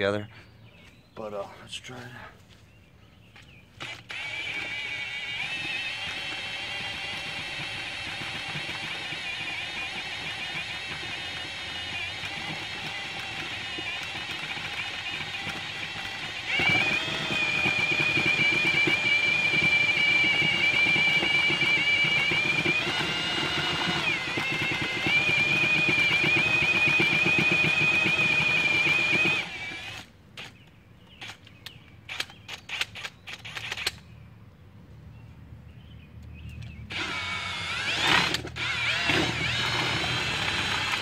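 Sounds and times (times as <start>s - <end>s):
power drill mixing paper pulp: 3.8s - 30.1s, 36.9s - 41.0s.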